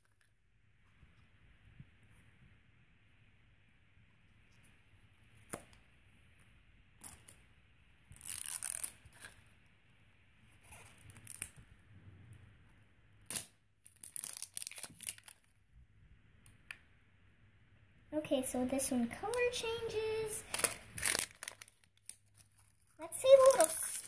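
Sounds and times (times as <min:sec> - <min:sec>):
plastic wrapper tearing: 0:13.3 - 0:15.5, 0:20.4 - 0:24.0
plastic shell pulled apart: 0:20.5 - 0:22.7.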